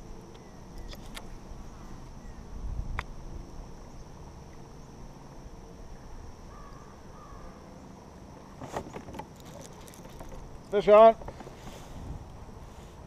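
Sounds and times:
wind rumble on microphone: 0:01.1 - 0:03.8, 0:10.4 - 0:13.0
faint bird calls: 0:05.9 - 0:07.9.

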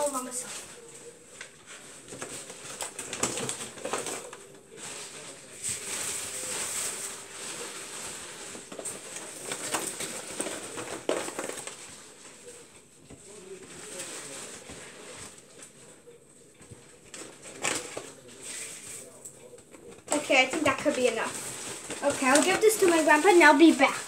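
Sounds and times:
paper bag crinkling: 0:00.0 - 0:12.7, 0:17.0 - 0:19.3, 0:19.9 - 0:24.0
popcorn pattering into bowl: 0:01.4 - 0:12.0, 0:16.7 - 0:24.0.

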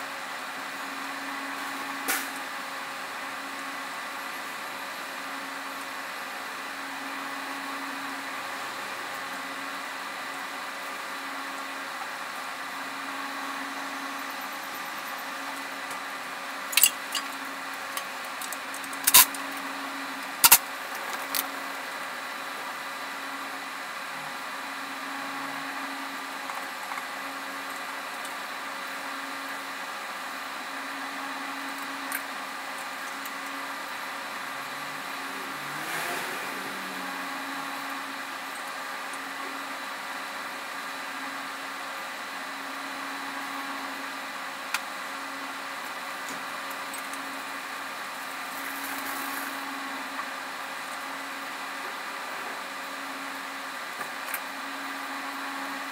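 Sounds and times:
machine hum: 0:00.0 - 0:55.9.

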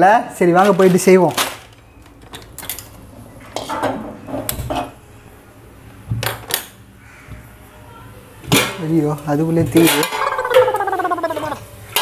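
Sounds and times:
metal kitchenware clinking: 0:09.8 - 0:10.7.

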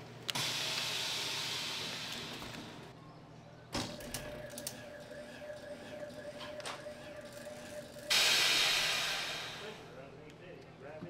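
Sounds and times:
steady hum: 0:00.0 - 0:10.3
hiss of air: 0:00.4 - 0:02.5, 0:08.1 - 0:09.8.

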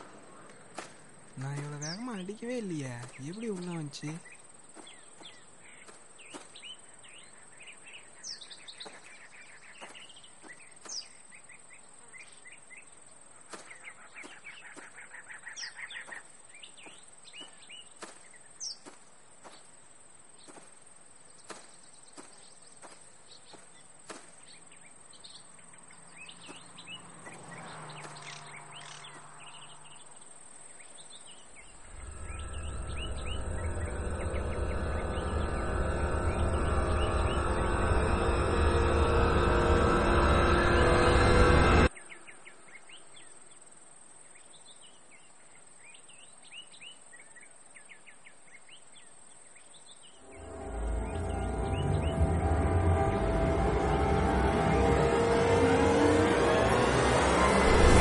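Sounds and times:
small birds chirping: 0:00.0 - 0:38.4
loud low hum: 0:31.8 - 0:41.9, 0:50.2 - 0:58.0.

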